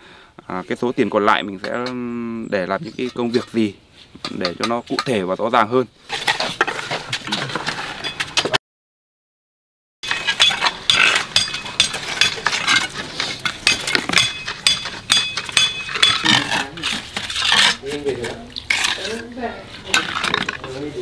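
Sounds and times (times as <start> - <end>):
metallic clinks and taps: 10.4 - 12.5, 13.4 - 16.4.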